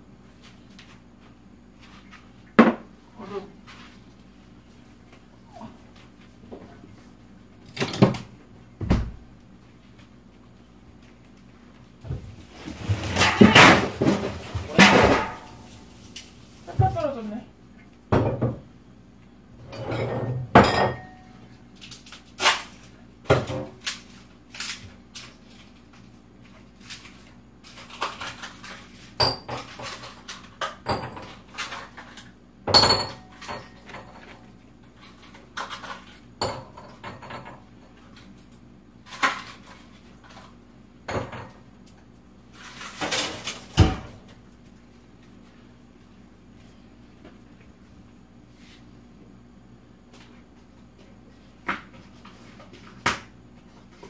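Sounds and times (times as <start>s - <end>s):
dishes and cutlery clinking: 19.7s - 21.3s.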